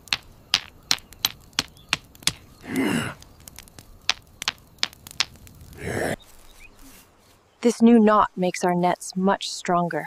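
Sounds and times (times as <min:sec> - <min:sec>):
stones striking sharp clicks: 0:00.0 - 0:05.8.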